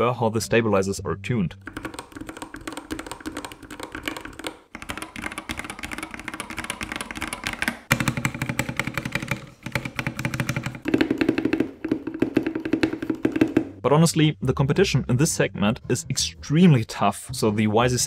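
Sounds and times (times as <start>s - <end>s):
mechanical keyboard typing: 1.6s - 13.5s.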